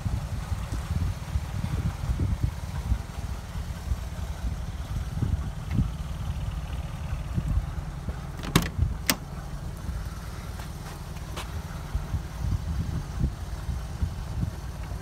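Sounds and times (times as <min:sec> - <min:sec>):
low rumble: 0:00.0 - 0:15.0
car door latch clicks: 0:08.4 - 0:09.3.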